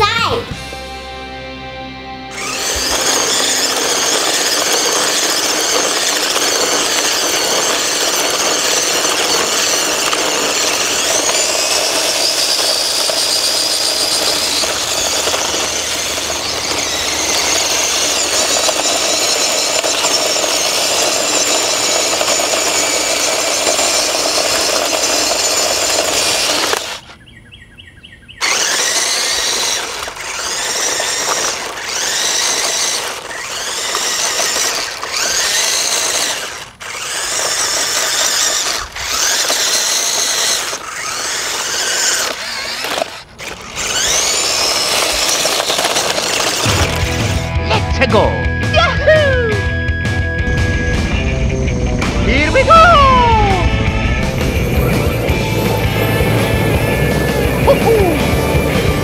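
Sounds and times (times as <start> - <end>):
toy car electric motor whining: 2.3 - 27.3, 28.4 - 59.0.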